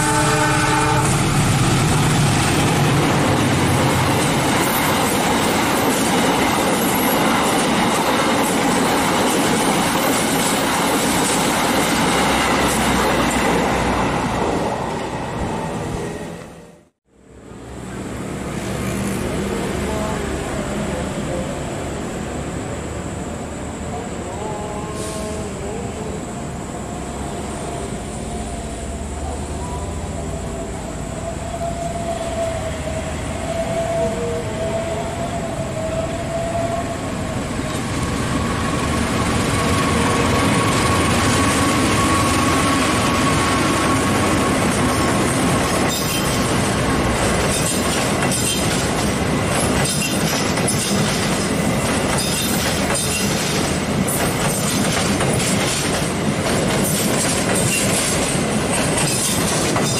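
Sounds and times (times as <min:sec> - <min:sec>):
passenger train passing: 0:00.0 - 0:59.9
high wheel squeal: 0:27.7 - 0:53.6
wheels clattering over rail joints: 0:39.0 - 0:59.9.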